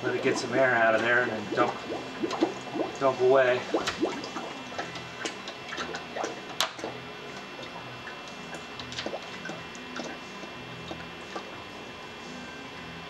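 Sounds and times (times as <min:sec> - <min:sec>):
liquid pouring from bucket: 0:00.0 - 0:10.2
bubbles clicking and popping: 0:00.0 - 0:11.6
faint low pump hum: 0:00.0 - 0:13.0.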